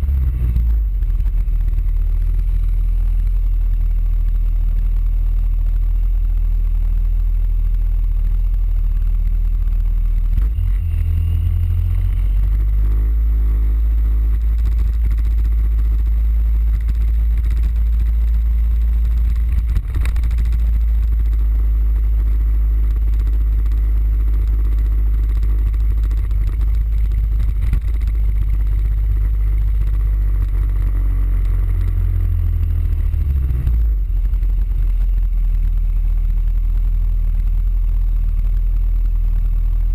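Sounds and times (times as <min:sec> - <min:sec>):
scooter engine rumbling: 0:08.8 - 0:39.0.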